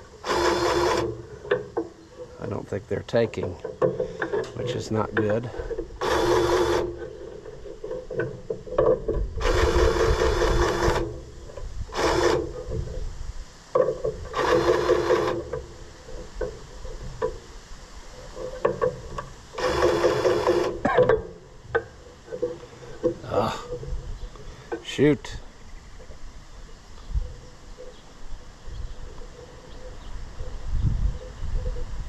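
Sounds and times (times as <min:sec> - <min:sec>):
grease gun pumping: 0:00.2 - 0:01.6, 0:05.2 - 0:07.6, 0:11.9 - 0:12.6
small clicks and knocks: 0:03.1 - 0:09.3, 0:18.4 - 0:23.2.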